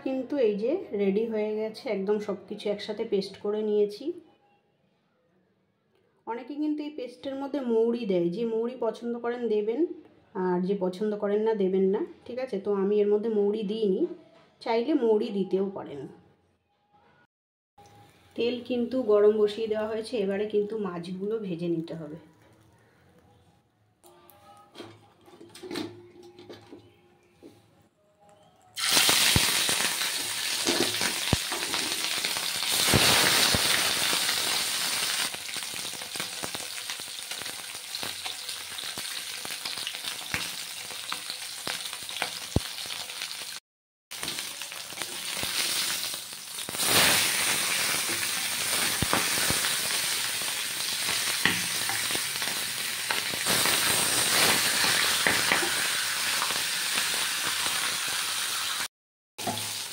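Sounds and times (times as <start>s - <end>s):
fish sizzling in hot oil: 28.8s - 59.9s.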